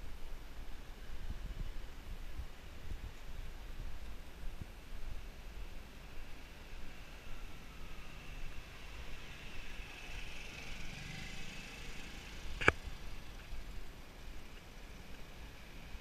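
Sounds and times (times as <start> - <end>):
traffic noise: 0.0 - 16.0
motor scooter engine passing: 6.6 - 13.8.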